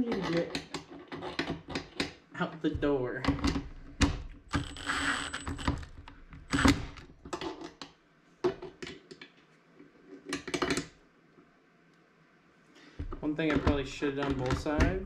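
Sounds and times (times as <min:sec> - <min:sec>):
impact driver rattling: 0:04.5 - 0:07.1.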